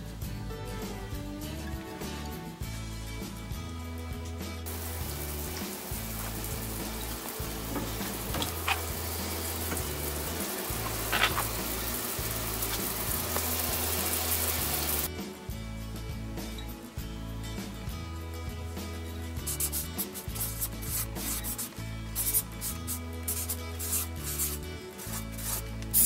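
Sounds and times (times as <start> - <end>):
background music with bass line: 0.0 - 26.0
shower water spraying: 4.6 - 15.1, 19.4 - 26.0.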